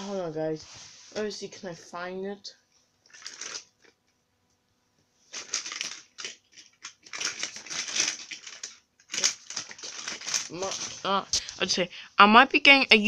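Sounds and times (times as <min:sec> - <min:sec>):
rustling and rummaging: 0:02.9 - 0:04.1, 0:05.0 - 0:11.8.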